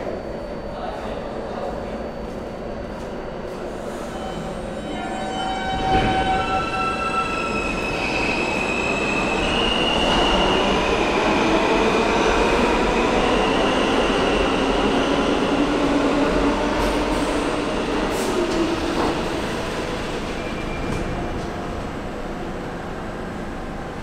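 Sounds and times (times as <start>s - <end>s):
high-pitched wheel squeal: 4.0s - 10.6s
train wheels rumbling on rails: 5.4s - 24.0s.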